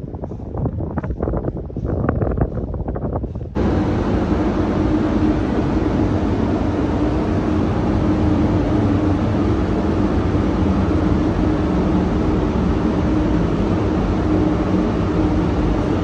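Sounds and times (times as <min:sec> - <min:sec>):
ventilation fans rushing air: 0:00.0 - 0:16.0
low hum: 0:03.4 - 0:16.0.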